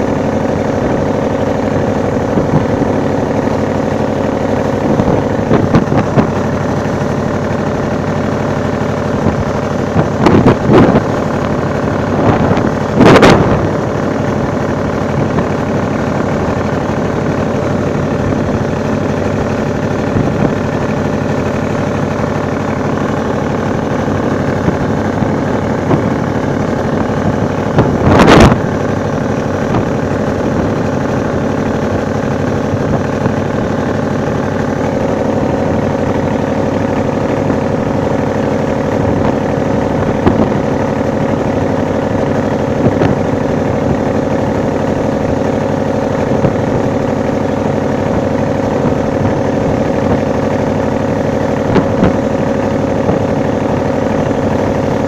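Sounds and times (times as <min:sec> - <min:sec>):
boat engine running: 0:00.0 - 0:55.0
water rushing along hull: 0:00.0 - 0:55.0.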